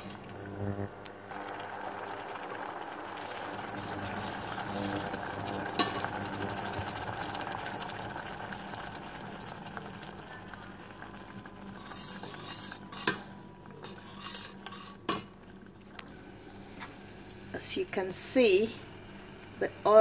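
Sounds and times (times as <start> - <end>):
paste simmering: 1.2 - 16.0
metal spoon stirring a pot: 3.3 - 6.1, 11.7 - 15.3.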